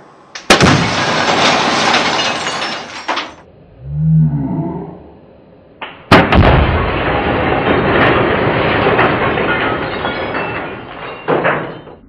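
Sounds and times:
glass shattering crash: 0.5s - 3.5s, 6.1s - 12.0s.

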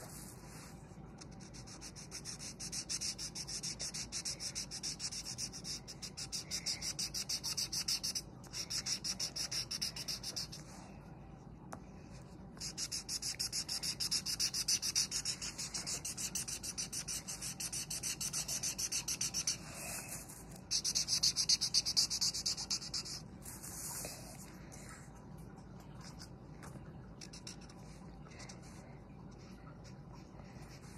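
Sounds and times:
marker scratching on paper: 1.2s - 10.7s, 12.6s - 24.2s, 27.3s - 27.7s.

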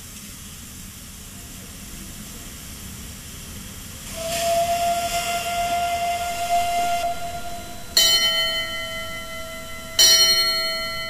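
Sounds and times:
steam hissing: 0.5s - 11.0s
steam whistle blowing: 4.0s - 11.0s.

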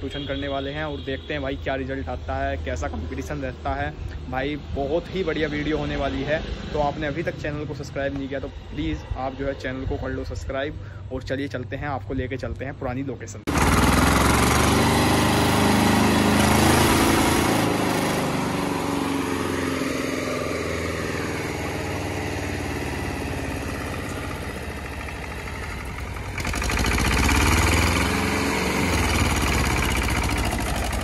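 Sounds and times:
tractor diesel engine revving: 13.5s - 31.0s.

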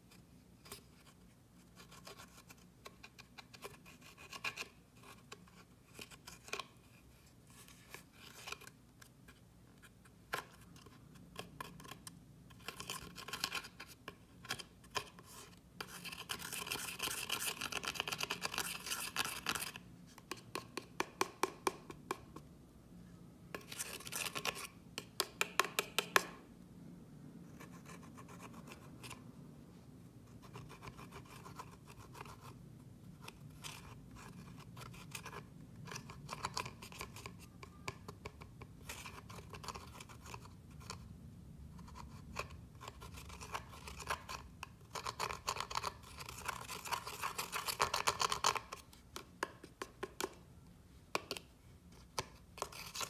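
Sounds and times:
spatula scraping eyeshadow: 10.4s - 19.8s, 23.6s - 24.8s, 41.8s - 49.0s, 52.2s - 53.0s.

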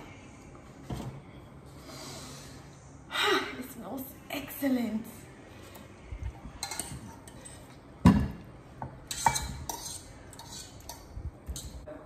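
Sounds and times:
utensil scraping metal bowl: 9.0s - 11.8s.

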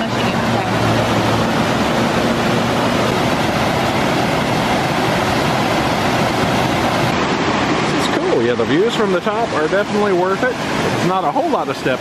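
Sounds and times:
vehicle engine humming: 0.0s - 11.5s
waterfall rushing: 0.0s - 12.0s.

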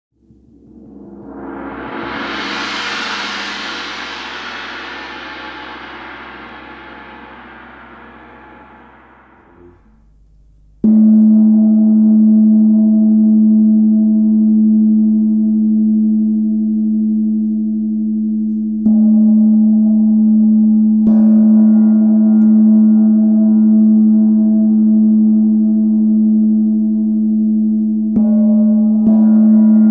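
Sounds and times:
gong strikes with deep hum: 0.3s - 10.1s.

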